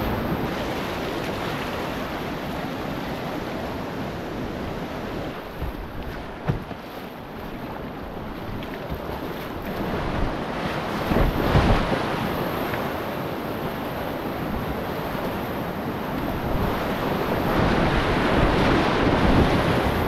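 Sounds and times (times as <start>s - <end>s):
wind buffeting microphone: 4.2s - 20.0s.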